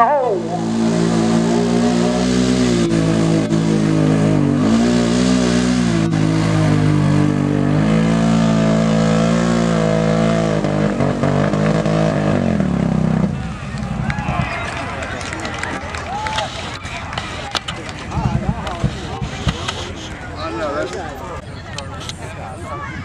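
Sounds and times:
atv engine revving: 0.0 - 14.7.

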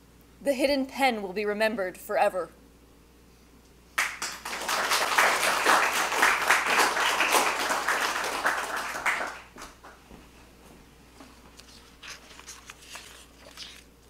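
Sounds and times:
audience applauding: 4.0 - 10.0.

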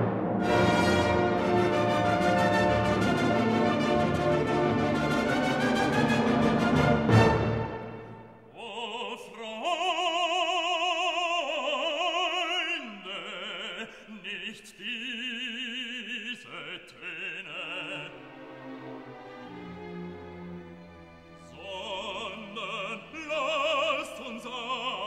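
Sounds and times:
orchestral chord: 0.0 - 8.4
operatic voice singing over orchestra: 8.5 - 19.0, 21.4 - 25.0.

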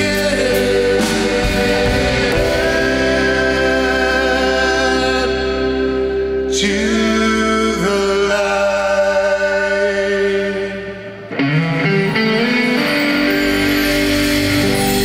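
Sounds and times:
rock band playing: 0.0 - 7.5, 11.0 - 15.0
electric guitar chord: 0.0 - 8.6, 10.8 - 15.0
person singing: 0.0 - 15.0.

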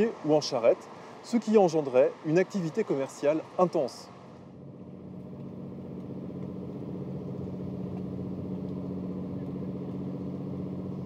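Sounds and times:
boat engine humming: 4.1 - 11.0.

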